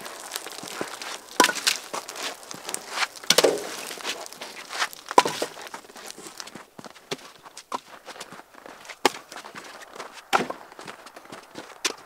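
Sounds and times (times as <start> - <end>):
fire crackling: 0.0 - 12.0
footsteps crunching in snow: 0.0 - 12.0
logs knocking into steel firebox: 1.3 - 5.7.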